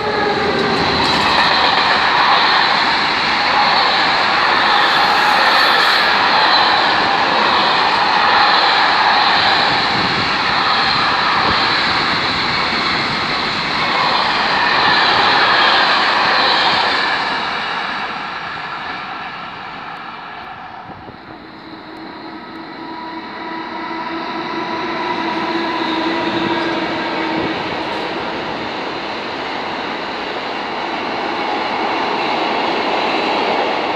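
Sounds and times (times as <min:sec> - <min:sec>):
freight train wagons rolling: 0:00.0 - 0:07.2.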